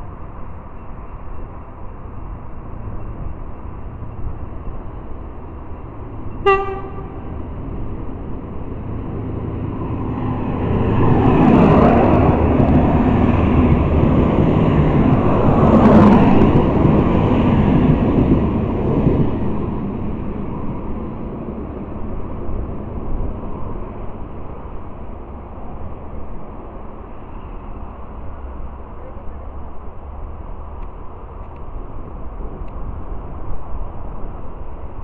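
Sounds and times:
train rumbling past: 0.0s - 35.0s
train horn blast: 6.3s - 7.4s.

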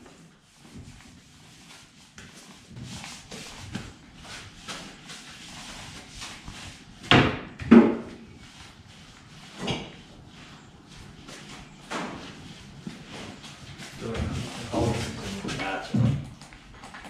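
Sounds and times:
knocks and thuds on plywood: 7.1s - 8.1s.

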